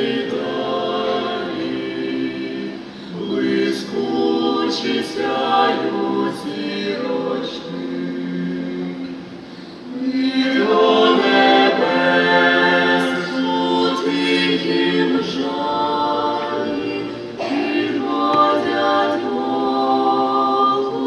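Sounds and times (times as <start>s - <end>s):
vocal ensemble singing in harmony: 0.0s - 21.0s.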